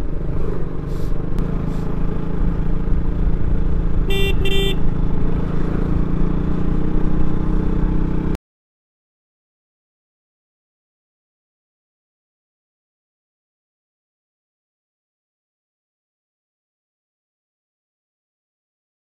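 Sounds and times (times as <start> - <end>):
motorcycle engine running: 0.0 - 8.4
horn beeping: 4.1 - 4.9.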